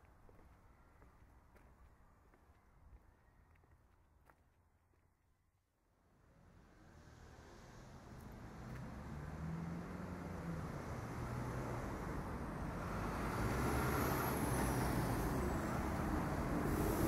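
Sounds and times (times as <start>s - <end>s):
rumble of engines and tyres: 6.0s - 17.0s
cars and vans passing: 6.1s - 17.0s.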